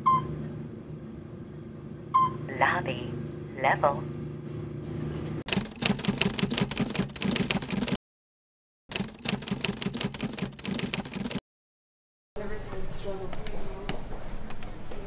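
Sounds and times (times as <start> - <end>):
rapid even clicking: 5.5 - 8.0, 8.9 - 11.4.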